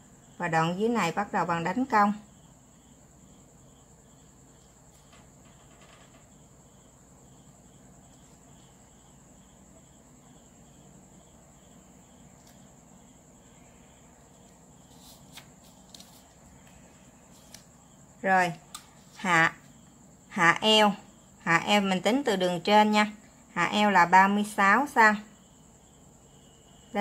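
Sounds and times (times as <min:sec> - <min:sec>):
soft insect-like chirp: 0:00.0 - 0:22.1
pen strokes on paper: 0:14.4 - 0:17.6.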